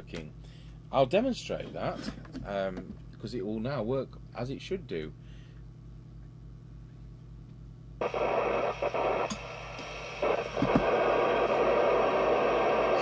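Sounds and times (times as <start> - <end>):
low steady hum: 0.0 - 13.0
radio receiver hiss: 8.0 - 13.0
radio control clicks: 8.9 - 11.1.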